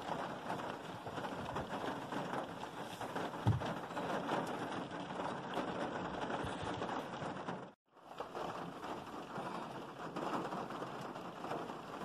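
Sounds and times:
rain pattering on glass: 0.0 - 12.0
dull thump: 3.4 - 3.8.

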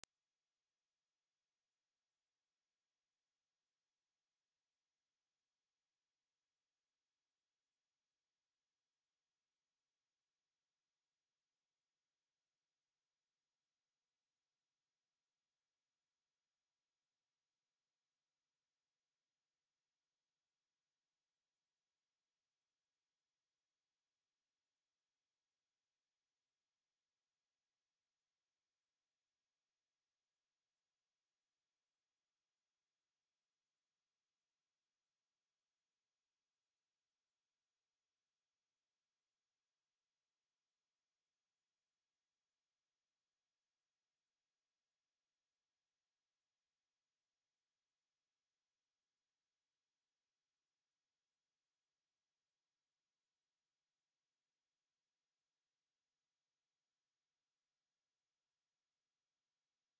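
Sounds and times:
high-pitched sine test tone: 0.0 - 4.3.

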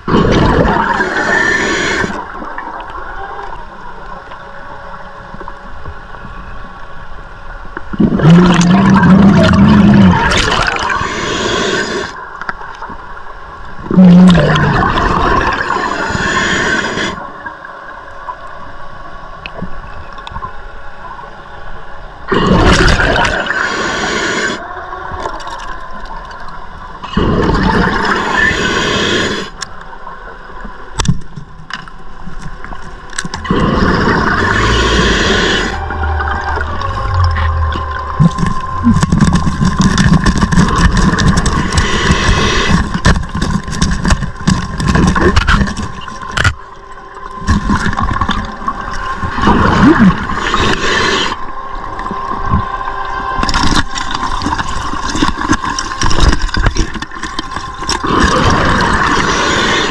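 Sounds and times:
exhaled bubbles underwater: 0.0 - 3.8, 7.9 - 12.9, 13.8 - 17.7, 22.3 - 29.6, 33.3 - 59.9
regulator hiss: 23.3 - 24.7, 27.9 - 29.7, 33.4 - 43.1.

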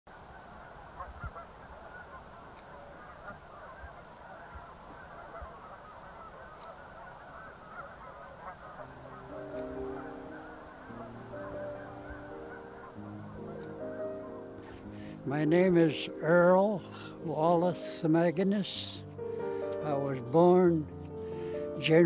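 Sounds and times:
geese honking: 0.1 - 22.0
soft music with held notes: 4.4 - 22.0.

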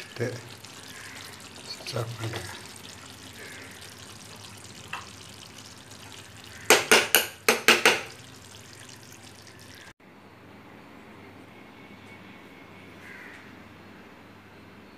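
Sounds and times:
sharp kitchen knocks: 6.7 - 8.2.

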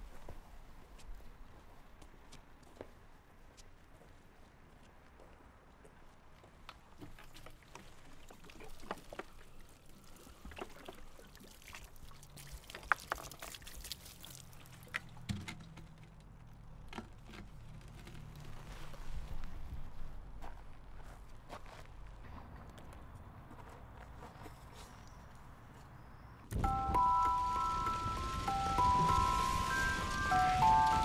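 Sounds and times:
liquid pouring and splashing: 8.1 - 15.2.

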